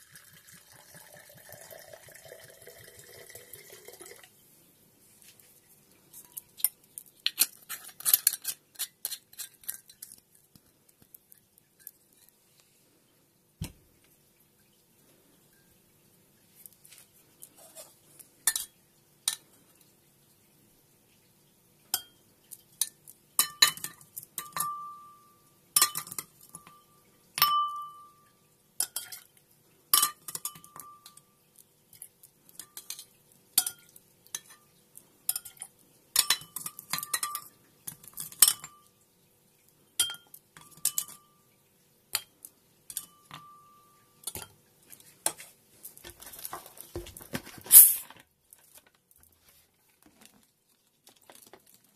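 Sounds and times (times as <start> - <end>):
ice clinking in glass: 25.8 - 28.2.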